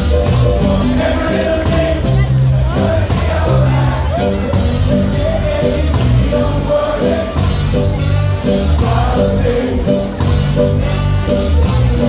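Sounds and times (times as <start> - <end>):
ska band playing reggae: 0.0 - 12.0.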